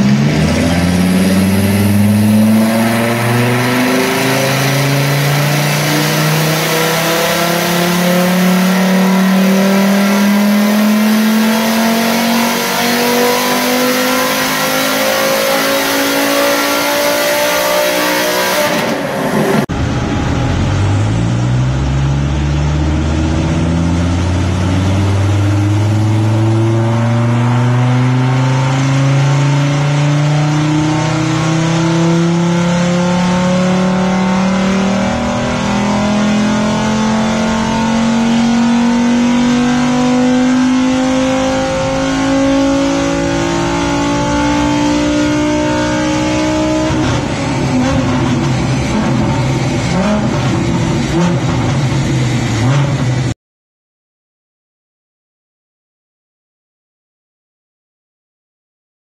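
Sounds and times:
car engine revving on dyno: 0.0 - 53.4.

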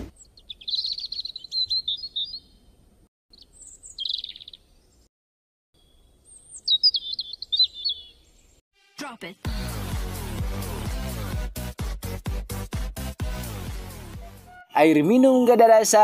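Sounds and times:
songbirds chirping and twittering: 0.0 - 5.1, 5.8 - 8.6.

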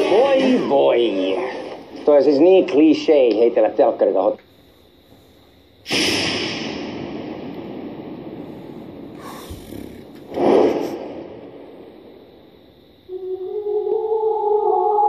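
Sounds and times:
rushing noise: 8.4 - 11.9.

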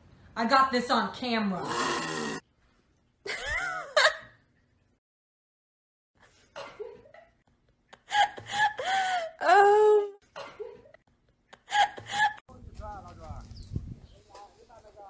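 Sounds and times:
person laughing and giggling: 3.3 - 4.3, 6.5 - 12.4.

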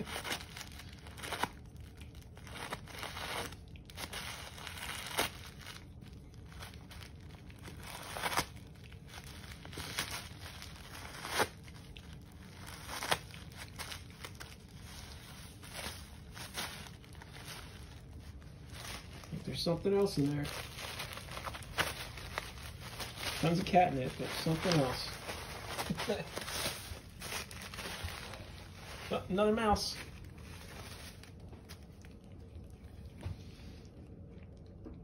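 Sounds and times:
tissue paper crinkling: 0.0 - 33.8
paper ripping: 2.4 - 31.9.

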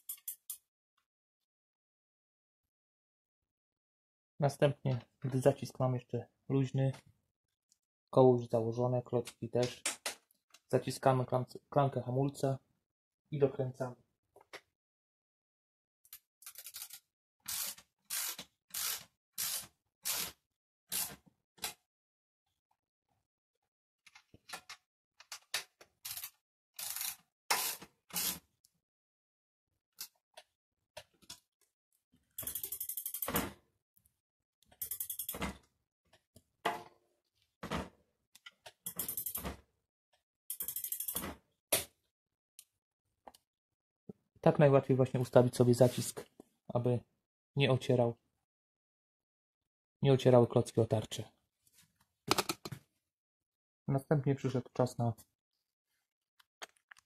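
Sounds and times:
ratchet wrench clicking: 40.5 - 41.2.

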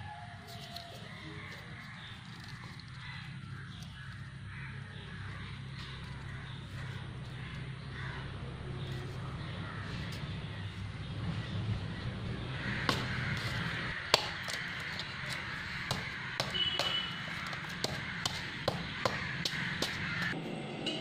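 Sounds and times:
knife chopping coconut: 14.1 - 20.3.

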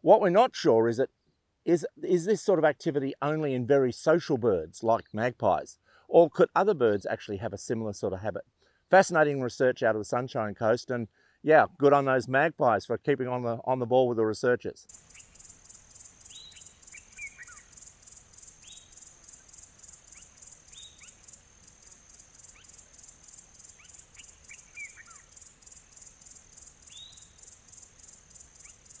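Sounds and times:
bird calls: 14.9 - 29.0
high-pitched insect chirring: 14.9 - 29.0.

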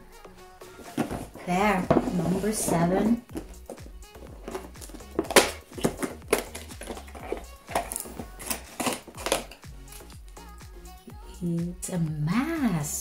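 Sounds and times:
cardboard crackling and snapping: 3.3 - 10.1.

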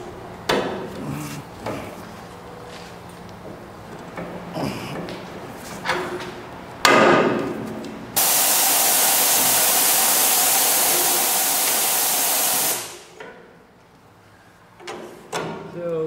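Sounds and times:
compressed air hissing: 8.2 - 13.1.

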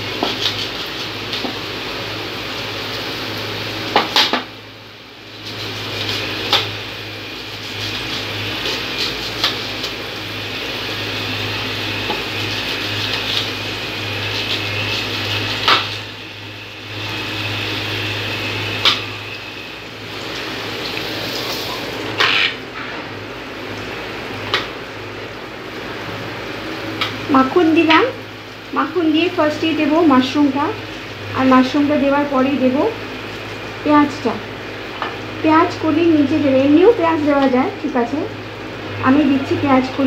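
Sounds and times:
knife cutting onion: 0.1 - 1.4.

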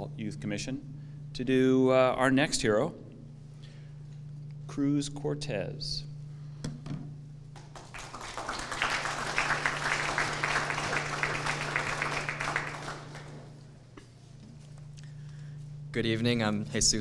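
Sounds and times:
audience applauding: 7.6 - 13.7.

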